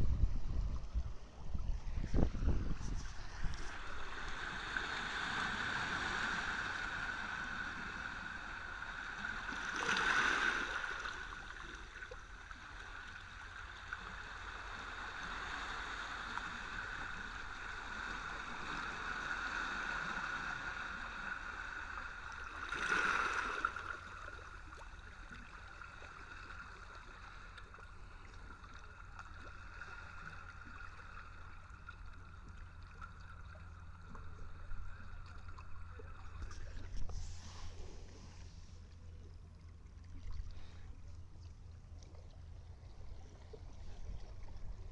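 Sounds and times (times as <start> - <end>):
small waves washing over rocks: 1.9 - 27.6.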